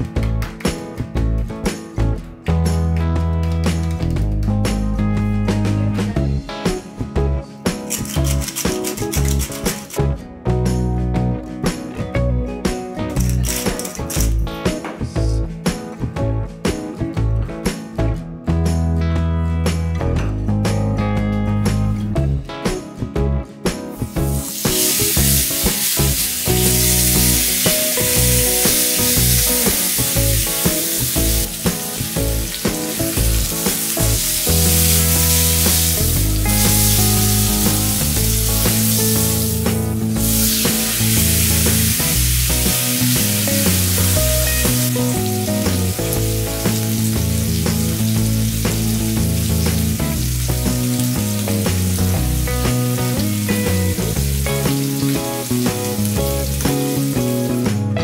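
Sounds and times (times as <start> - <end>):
background music: 0.0 - 58.0
steak sizzling in grill pan: 23.9 - 57.8.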